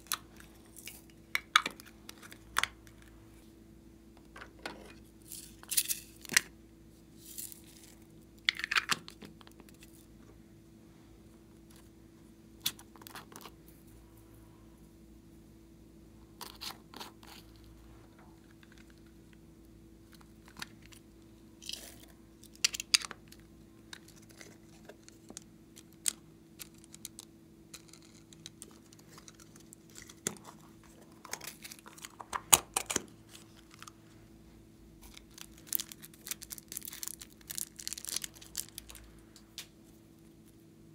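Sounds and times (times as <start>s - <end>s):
faint steady hum: 0.0s - 40.9s
rustling and crinkling: 23.2s - 34.1s, 35.0s - 40.6s.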